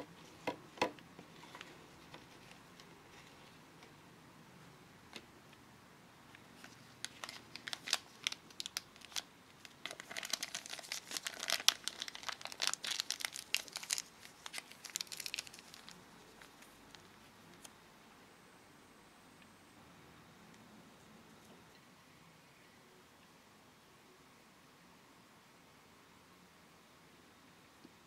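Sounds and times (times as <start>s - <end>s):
plastic bag crinkling: 6.6s - 17.1s.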